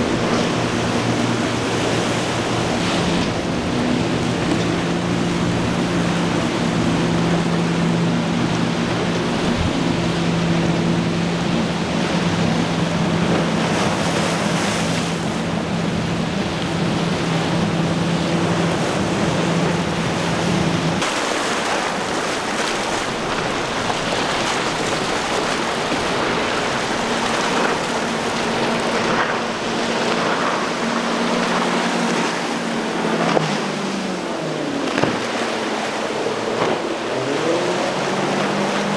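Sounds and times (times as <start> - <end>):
outboard motors running: 0.0 - 38.9
surf and wind noise: 0.0 - 38.9.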